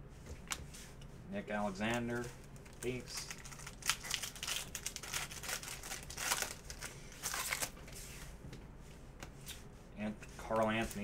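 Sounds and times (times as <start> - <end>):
trading cards rustling: 1.8 - 8.2.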